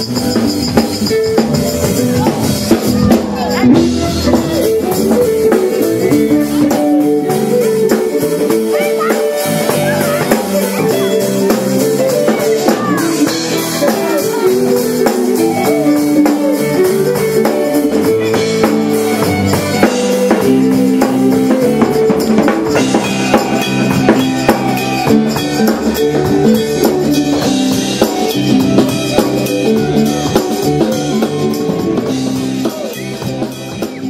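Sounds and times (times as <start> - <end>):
drum kit beat: 0.0 - 34.0
keyboard: 0.0 - 34.0
live band playing upbeat song: 0.0 - 34.0
fiddle: 3.0 - 34.0.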